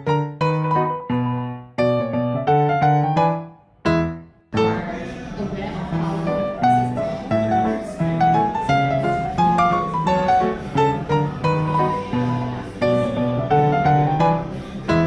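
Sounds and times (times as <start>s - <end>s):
background music melody: 0.0s - 15.0s.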